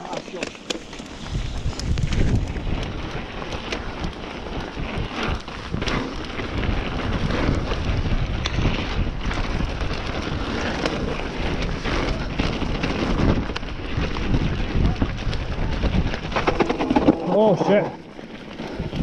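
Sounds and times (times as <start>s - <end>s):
bike rattling clicks and knocks: 0.0s - 19.0s
steady rumble: 0.8s - 19.0s
wind buffeting microphone: 0.9s - 19.0s.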